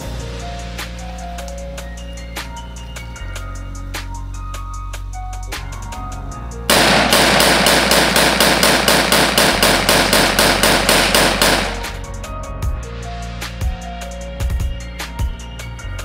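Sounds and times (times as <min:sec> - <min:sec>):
background music with a beat: 0:00.0 - 0:16.0
rifle shots in rapid succession: 0:06.7 - 0:12.0.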